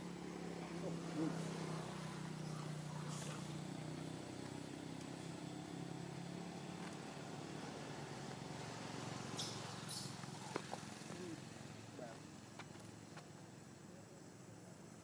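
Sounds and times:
high hissing rustles: 0.7s - 4.0s, 7.7s - 12.0s.

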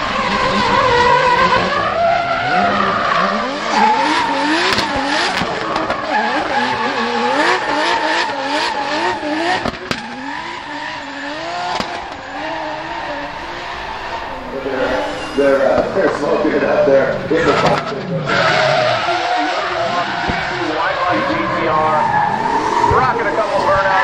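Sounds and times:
car engine revving: 0.0s - 24.0s
tyres squealing: 0.2s - 24.0s
sharp cracks: 11.6s - 13.7s.

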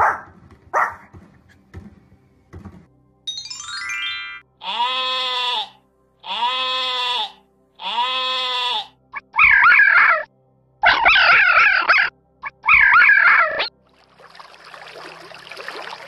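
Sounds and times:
sheep bleating: 4.6s - 9.0s
fox calls with wavering pitch: 4.6s - 13.7s.

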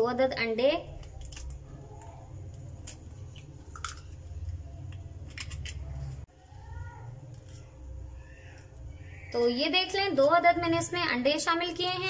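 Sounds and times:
eggshells cracking: 0.9s - 5.9s.

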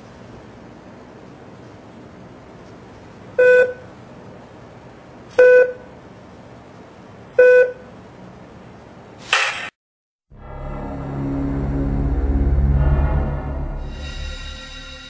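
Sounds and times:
short electronic beeps: 3.4s - 3.8s, 5.4s - 5.8s, 7.4s - 7.8s.

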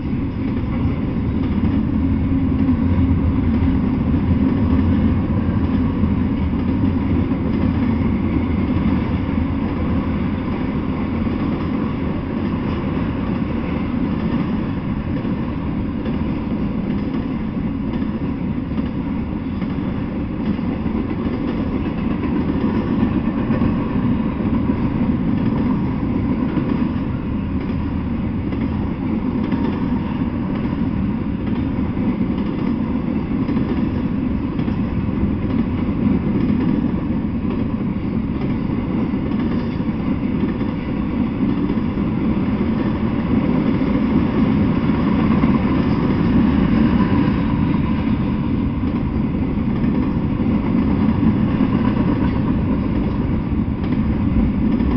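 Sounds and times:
train wheels rolling on rails: 0.0s - 54.9s.

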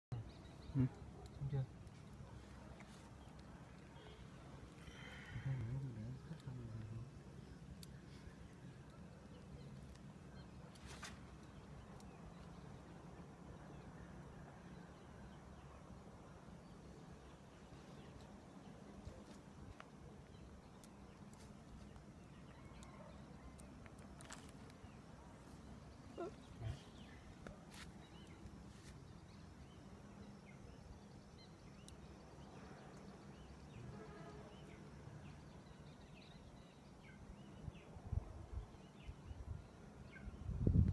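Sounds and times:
faint bird chirps: 0.1s - 40.9s
brief rustle: 10.7s - 11.4s
wind rumble on microphone: 37.8s - 40.9s.

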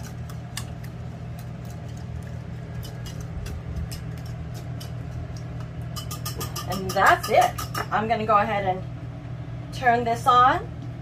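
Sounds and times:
steady low hum: 0.0s - 11.0s
whisk clicking against a bowl: 2.6s - 7.9s.

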